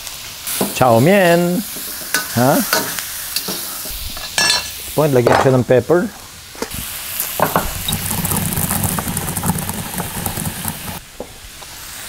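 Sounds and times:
pestle grinding in stone mortar: 7.4s - 11.0s.

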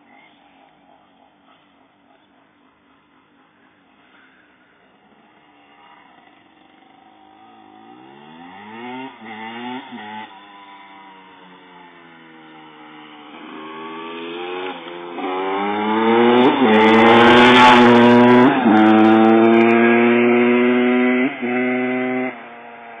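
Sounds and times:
motocross bike accelerating: 4.8s - 23.0s.

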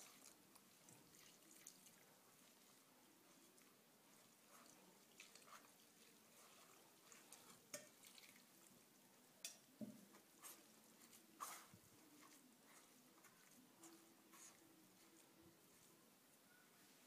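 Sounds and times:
water dripping and trickling: 0.0s - 8.8s
hand rustling through carrots: 10.3s - 16.0s.

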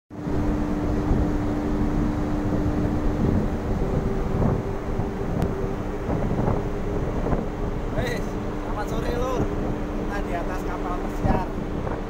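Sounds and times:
ship machinery drone: 0.1s - 12.0s
wind buffeting microphone: 0.1s - 12.0s.

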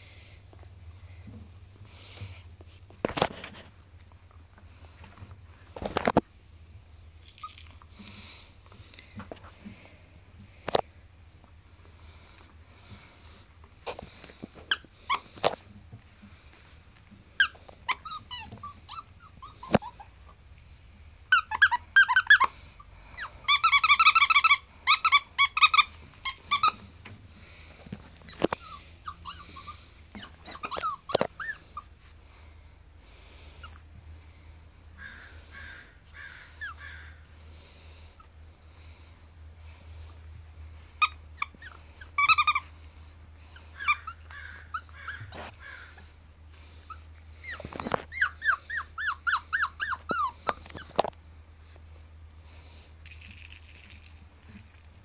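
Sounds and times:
dog toy squeaking: 14.7s - 15.3s, 17.4s - 20.2s, 21.3s - 22.5s, 23.1s - 26.8s, 28.2s - 31.9s, 41.0s - 42.7s, 43.5s - 45.6s, 46.9s - 50.9s.

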